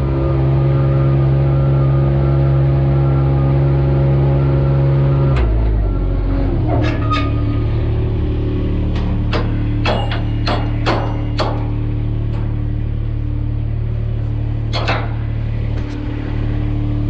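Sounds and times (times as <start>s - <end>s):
diesel engine droning: 0.0s - 17.0s
brief squeal: 6.4s - 7.8s
metal clanks: 8.9s - 12.7s, 14.6s - 16.1s
sharp metallic bang: 9.3s - 11.8s.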